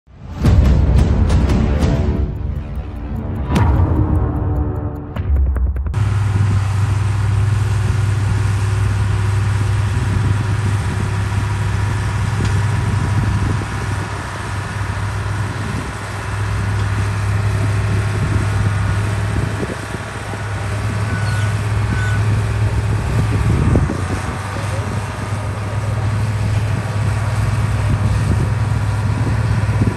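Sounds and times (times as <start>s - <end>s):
heavy machinery diesel engine: 6.0s - 29.9s.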